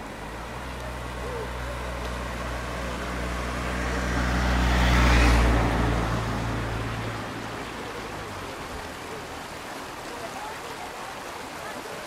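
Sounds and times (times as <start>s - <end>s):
van driving past: 0.0s - 9.6s.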